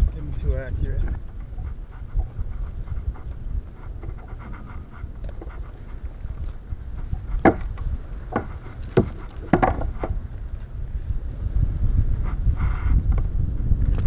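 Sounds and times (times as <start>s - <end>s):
wind rumbling on microphone: 0.0s - 14.0s
knocks and thumps on kayak: 1.1s - 10.3s.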